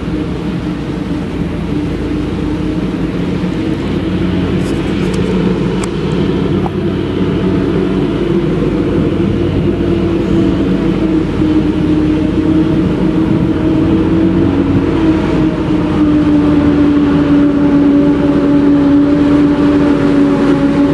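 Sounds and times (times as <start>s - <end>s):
harvester and tractor engines droning: 0.0s - 20.9s.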